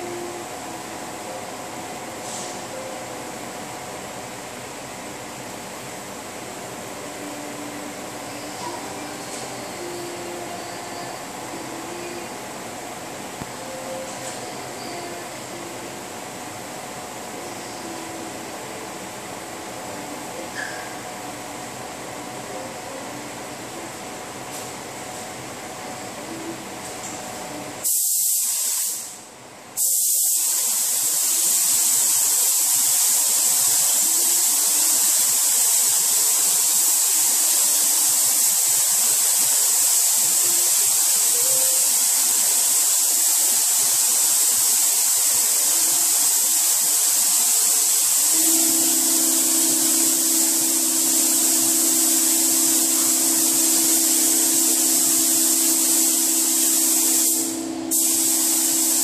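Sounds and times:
spray gun hissing: 0:27.8 - 0:29.2, 0:29.8 - 0:59.0.

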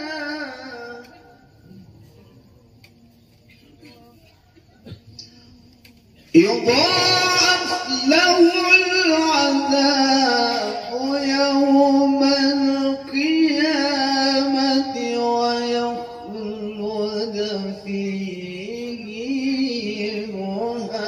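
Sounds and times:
man reciting melodically: 0:00.0 - 0:01.4, 0:06.3 - 0:21.0.

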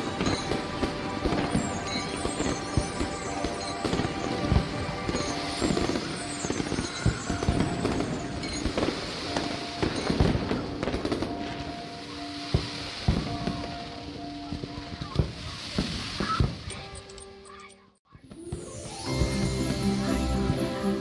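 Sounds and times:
music with sustained notes: 0:00.0 - 0:15.6, 0:16.6 - 0:21.0
fireworks bangs: 0:00.0 - 0:16.8, 0:18.2 - 0:21.0
fireworks crackle: 0:00.0 - 0:21.0.

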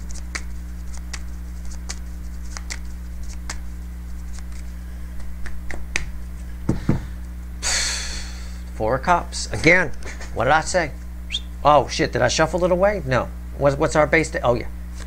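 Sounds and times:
cards shuffled by hand: 0:00.0 - 0:06.6
low steady hum: 0:00.0 - 0:15.0.

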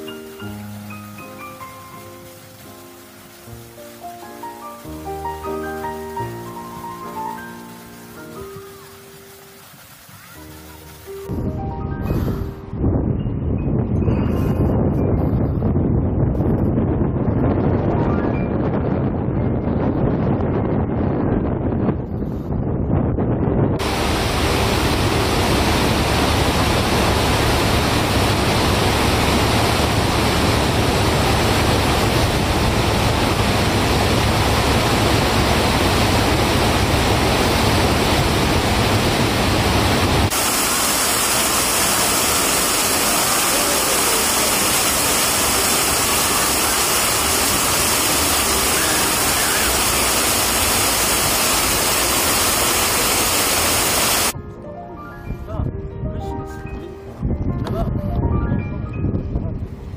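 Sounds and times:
whitewater rushing over rocks: 0:00.0 - 0:11.3, 0:23.8 - 0:54.4.

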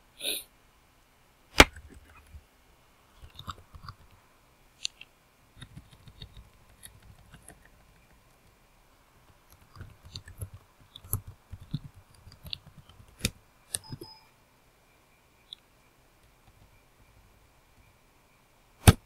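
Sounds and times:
keyboard keys clicking: 0:05.6 - 0:08.6, 0:09.3 - 0:14.2.

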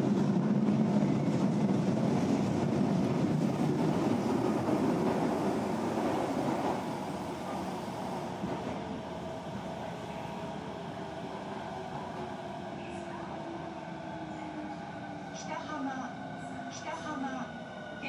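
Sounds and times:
train wheels rumbling on rails: 0:00.0 - 0:09.0.

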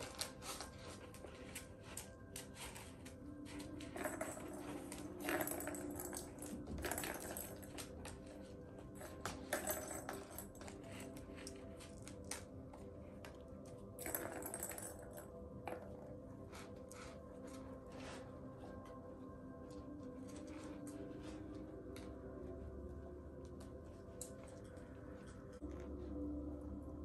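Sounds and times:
paws and claws on tile floor: 0:00.0 - 0:26.4
plastic ball rolling in cat toy: 0:03.6 - 0:12.0, 0:14.0 - 0:16.1.

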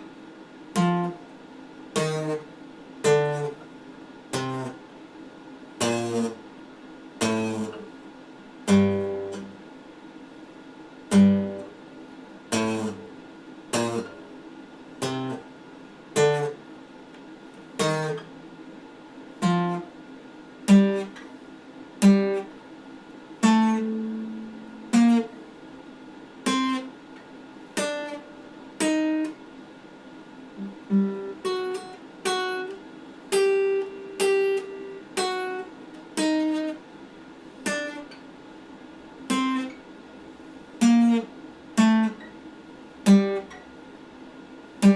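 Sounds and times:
acoustic guitar notes picked: 0:00.7 - 0:01.2, 0:01.9 - 0:03.7, 0:04.3 - 0:04.8, 0:05.8 - 0:06.4, 0:07.2 - 0:07.9, 0:08.7 - 0:09.6, 0:11.1 - 0:11.8, 0:12.5 - 0:14.2, 0:15.0 - 0:15.5, 0:16.2 - 0:16.6, 0:17.8 - 0:18.4, 0:19.4 - 0:19.9, 0:20.7 - 0:21.2, 0:22.0 - 0:22.6, 0:23.4 - 0:25.4, 0:26.4 - 0:26.9, 0:27.8 - 0:29.4, 0:30.6 - 0:36.8, 0:37.6 - 0:38.2, 0:39.3 - 0:39.8, 0:40.8 - 0:42.4, 0:43.0 - 0:43.7.

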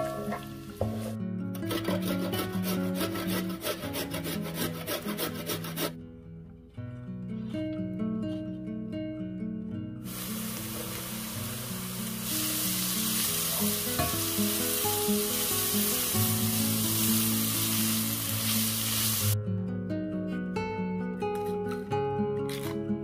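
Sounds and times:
vegetables sizzling in oil: 0:10.0 - 0:19.4.

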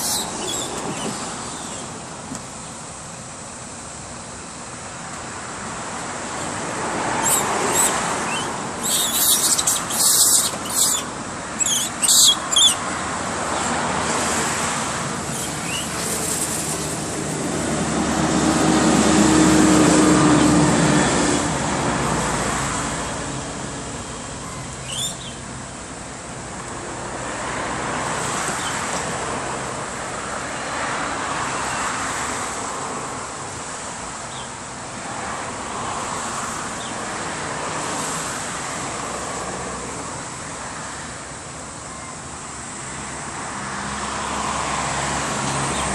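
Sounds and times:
road traffic noise: 0:00.0 - 0:45.9
vehicle passing: 0:06.3 - 0:24.0.

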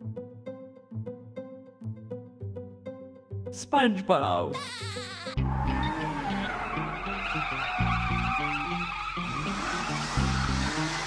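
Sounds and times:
background music with bass line: 0:05.4 - 0:11.0
cartoon vehicle whine: 0:05.4 - 0:11.0.

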